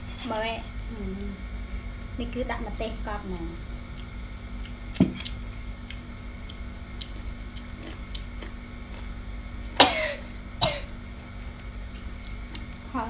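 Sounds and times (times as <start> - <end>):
chewing crunchy fruit: 3.8 - 9.2, 10.9 - 12.9.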